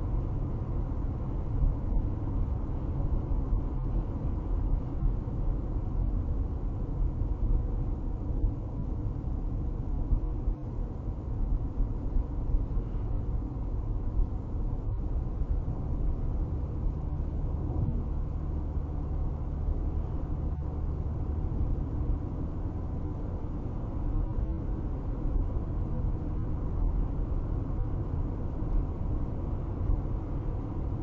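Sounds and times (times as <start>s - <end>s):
car road rumble from inside: 0.0s - 31.0s.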